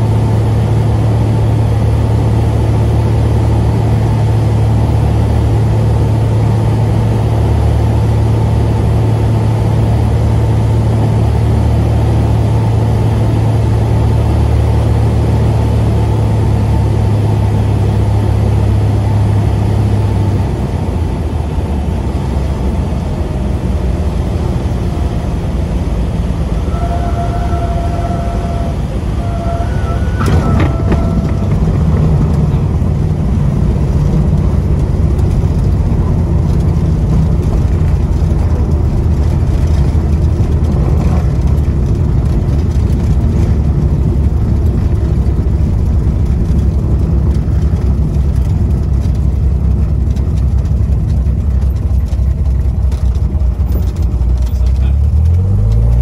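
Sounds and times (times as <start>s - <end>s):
propeller engine drone: 0.0s - 56.0s
wind rush: 10.1s - 52.0s.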